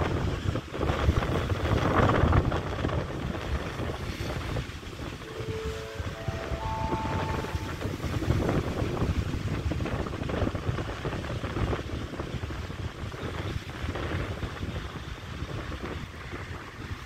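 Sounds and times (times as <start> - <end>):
train low rumble: 0.0 - 17.0
wind buffeting microphone: 0.0 - 17.0
electric train whine: 3.6 - 11.0.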